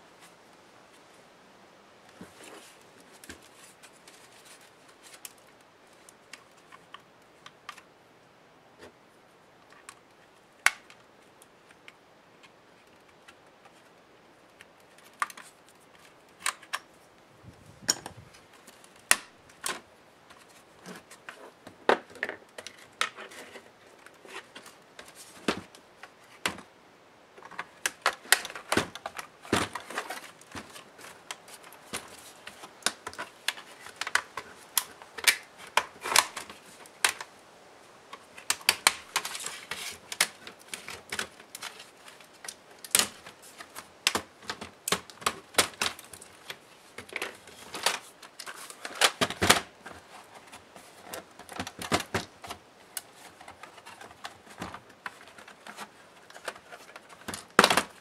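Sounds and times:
plastic clips clicking and snapping: 16.3s - 16.9s, 27.4s - 37.3s, 38.1s - 49.7s
plastic scraping: 27.4s - 37.3s, 38.1s - 58.0s.

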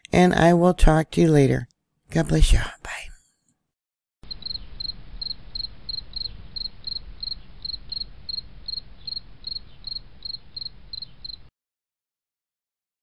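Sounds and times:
cricket chirping: 4.2s - 11.5s.

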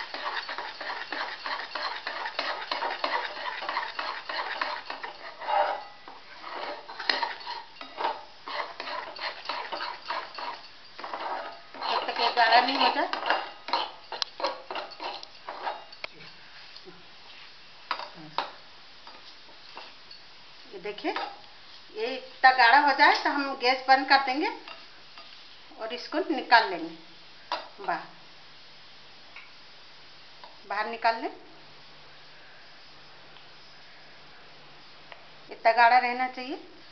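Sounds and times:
metal spatula scraping a pan: 0.0s - 16.4s.

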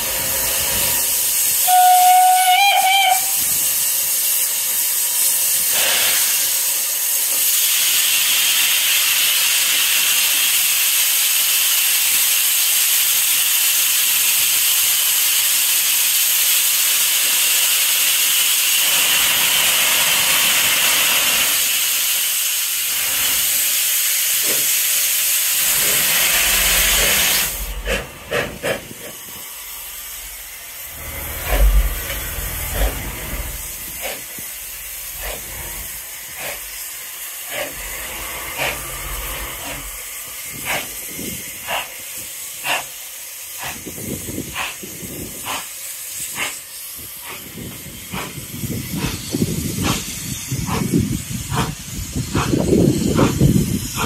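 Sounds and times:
short steam puffs: 0.0s - 54.0s
steam hissing: 0.0s - 54.0s
steam locomotive whistle: 1.5s - 3.8s.

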